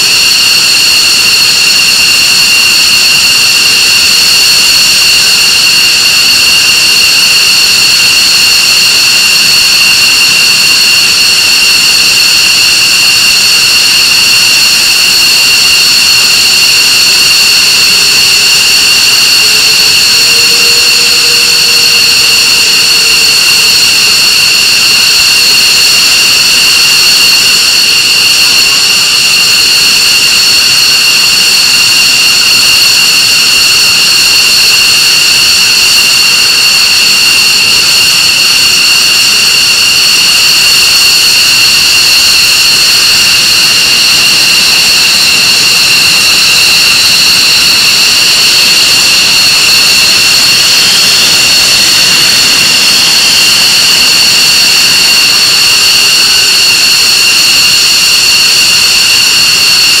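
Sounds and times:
jet engines idling: 9.6 - 32.7, 43.3 - 56.8.

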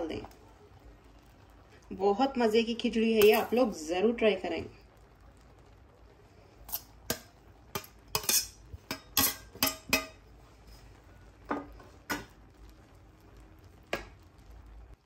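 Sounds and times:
metal spoon clinking on steel bowl: 6.7 - 10.2.

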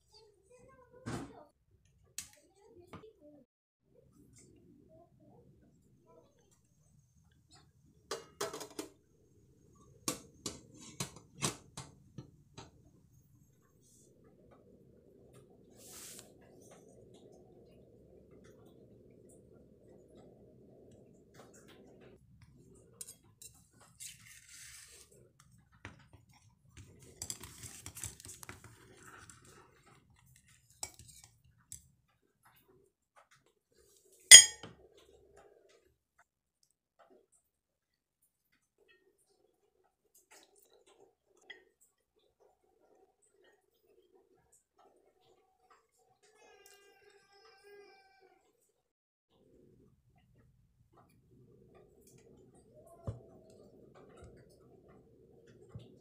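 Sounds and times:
blade scraping inside a cup: 23.1 - 25.2
metal pot clinking: 34.3 - 34.7.

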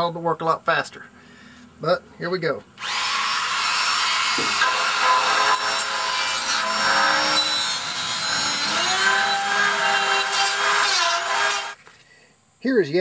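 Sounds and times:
rotary tool grinding metal: 2.8 - 11.8.

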